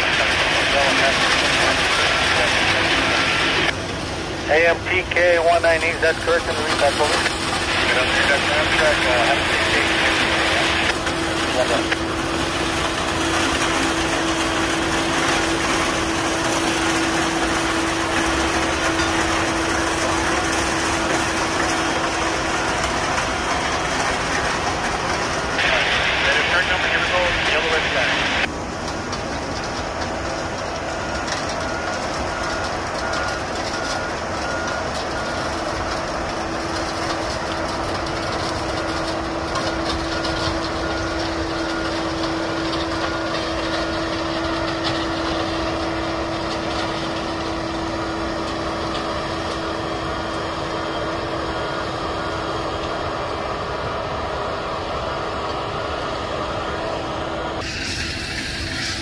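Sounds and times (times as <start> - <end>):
track maintenance machine running: 0.0 - 59.0
backup alarm beeping: 31.0 - 35.9.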